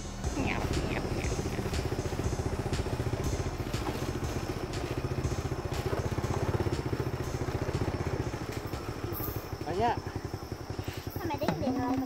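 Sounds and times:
small motorcycle engine running: 0:00.0 - 0:12.0.

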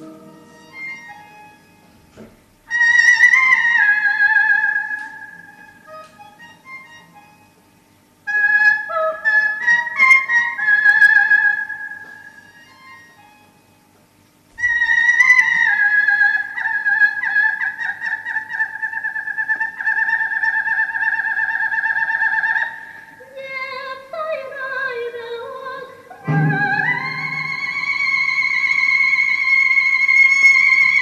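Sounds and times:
operatic soprano singing: 0:14.6 - 0:31.0.

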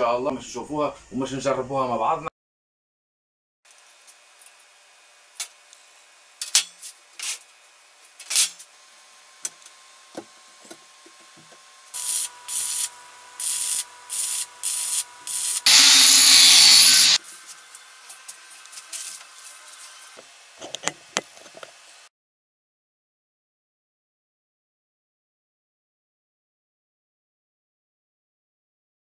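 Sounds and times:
arc welder crackling: 0:11.4 - 0:19.3.

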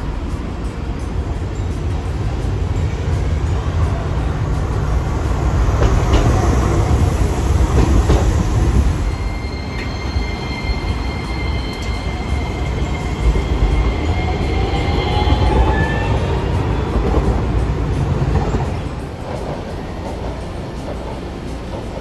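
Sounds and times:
tram motor whine rising: 0:00.0 - 0:19.0
tram wheels rumbling on rail: 0:00.0 - 0:22.0
high-pitched wheel squeal: 0:08.8 - 0:16.9.

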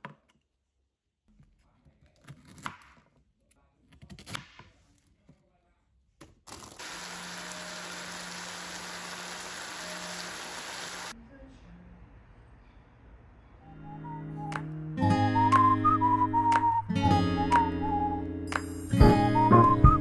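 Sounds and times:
frying sizzle: 0:06.8 - 0:11.2.

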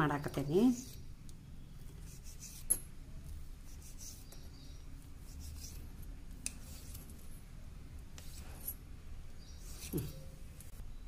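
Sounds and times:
knife slicing dough: 0:05.2 - 0:07.2.

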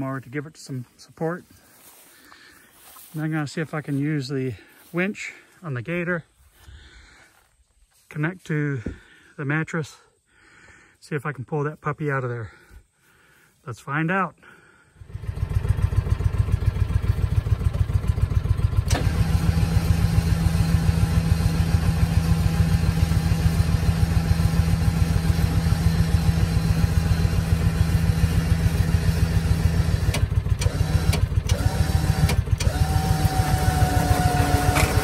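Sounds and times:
engine running: 0:00.3 - 0:07.6, 0:14.4 - 0:35.0.

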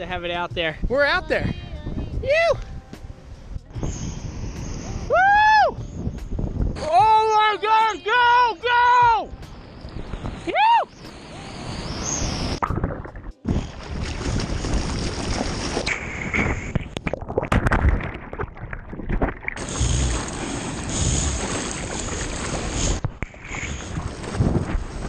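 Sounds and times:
wind buffeting microphone: 0:00.0 - 0:07.9, 0:09.0 - 0:25.0
churning surf: 0:06.7 - 0:17.0, 0:19.2 - 0:25.0
muffled underwater splashes: 0:12.5 - 0:25.0.

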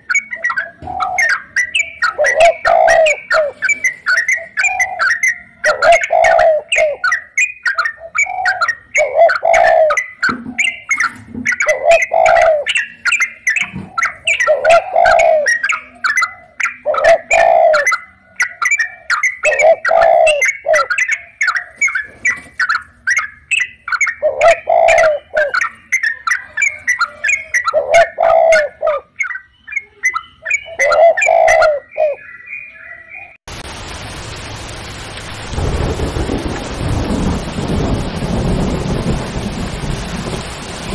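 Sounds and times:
bird cooing call: 0:00.0 - 0:33.4
birds chirping: 0:00.0 - 0:40.9
rain hissing: 0:33.5 - 0:40.9.

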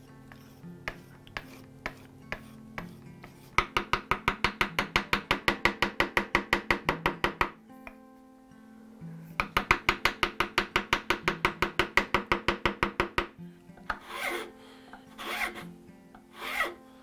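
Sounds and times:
file rasping across wood: 0:00.3 - 0:05.1, 0:13.9 - 0:14.5, 0:15.2 - 0:15.7, 0:16.3 - 0:16.8.

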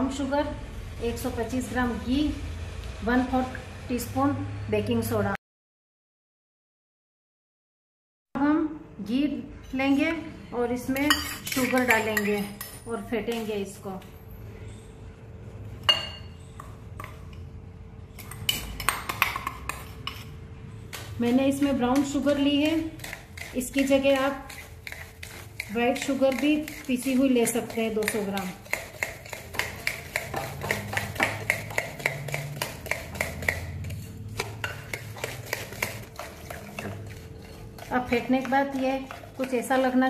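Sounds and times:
spoon clinking on glass bowl: 0:11.0 - 0:12.9.

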